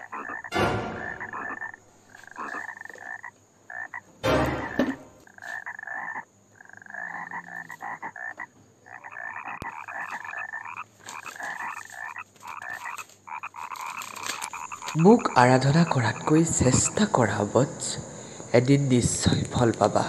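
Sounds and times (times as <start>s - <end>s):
frogs croaking: 0.0s - 20.0s
loud sudden noises: 0.5s - 1.6s.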